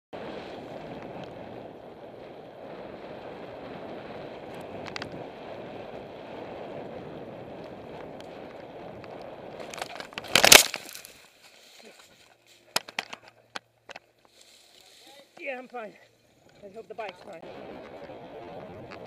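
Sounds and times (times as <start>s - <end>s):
wind on microphone: 0.1s - 10.4s, 17.3s - 19.0s
bike tyres rolling on dirt: 0.1s - 19.0s
bike clicks and rattles: 4.3s - 6.0s, 7.6s - 11.2s, 12.6s - 14.4s.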